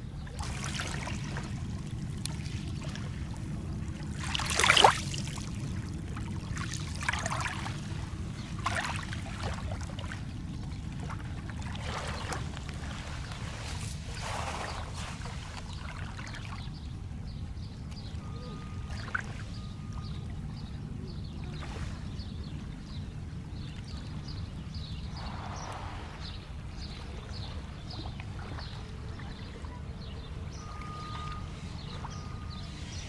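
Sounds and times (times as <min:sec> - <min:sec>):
steady low rumble: 0:00.0 - 0:33.0
small waves lapping on pebbles: 0:00.3 - 0:10.2, 0:10.8 - 0:16.6.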